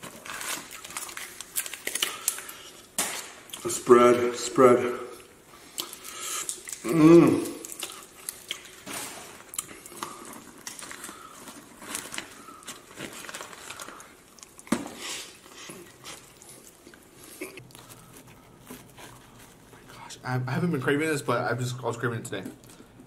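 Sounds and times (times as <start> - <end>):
wet squishing: 5.5 - 19.8.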